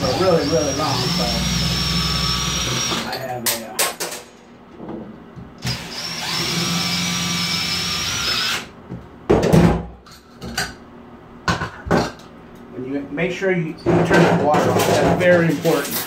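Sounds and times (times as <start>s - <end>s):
cordless drill running: 0.0s - 3.1s, 5.6s - 8.7s.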